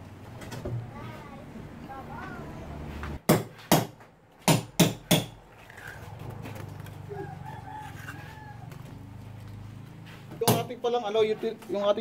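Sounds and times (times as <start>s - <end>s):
rooster crowing: 7.0s - 9.2s.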